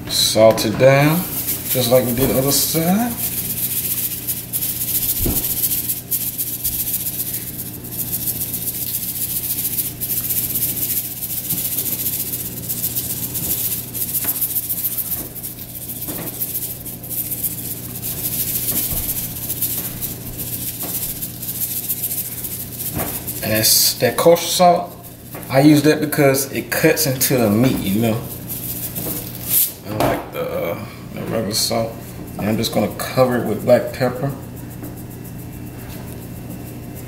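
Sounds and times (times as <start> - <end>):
salt shaken from canister: 1.1 - 25.9, 26.7 - 29.8.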